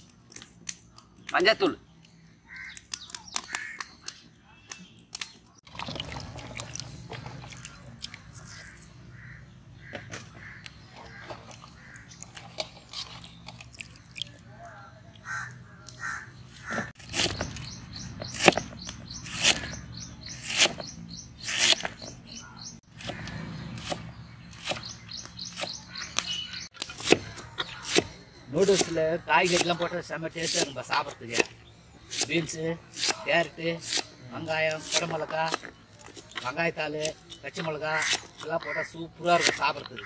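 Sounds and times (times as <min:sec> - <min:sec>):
birds calling: 0:00.1 - 0:40.0
cleaver chopping on wooden block: 0:18.2 - 0:28.1.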